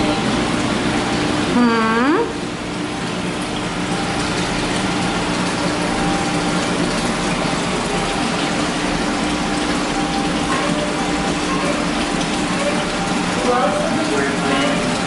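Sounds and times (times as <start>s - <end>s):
water splashing into tank: 2.3s - 15.0s.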